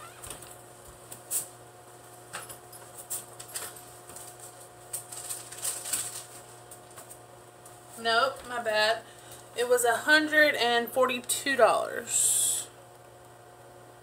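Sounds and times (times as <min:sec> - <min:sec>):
steady low hum: 0:00.0 - 0:14.0
wallet and paper rustling: 0:03.1 - 0:07.2.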